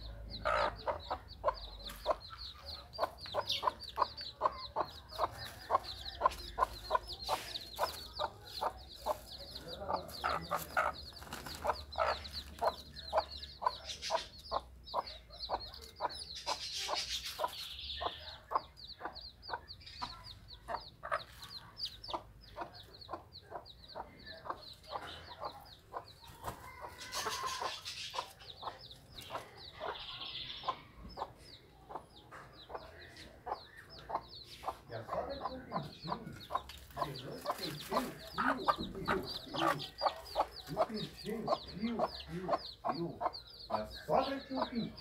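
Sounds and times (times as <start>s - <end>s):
chicks peeping: 0.0s - 45.0s
hen clucking: 0.0s - 45.0s.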